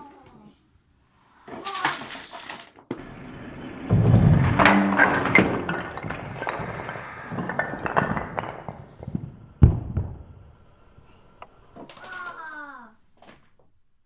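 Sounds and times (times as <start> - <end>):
wooden blocks clattering: 1.3 - 13.6
heavy thud: 3.0 - 10.7.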